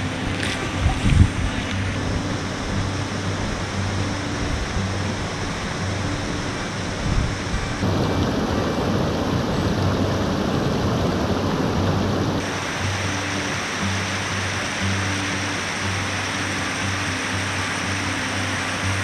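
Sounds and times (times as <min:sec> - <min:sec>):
creek water rushing over boulders: 0:00.0 - 0:19.0
faint background music: 0:00.0 - 0:19.0.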